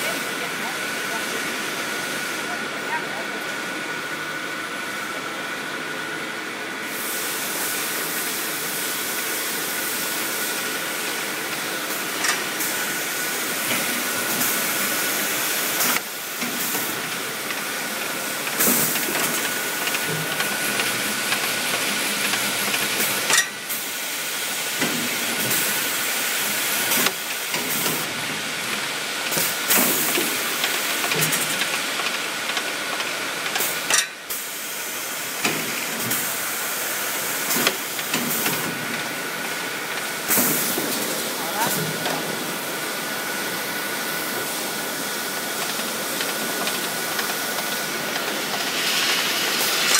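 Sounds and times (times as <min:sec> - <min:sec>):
machine hiss: 0:06.8 - 0:28.2, 0:33.2 - 0:49.9.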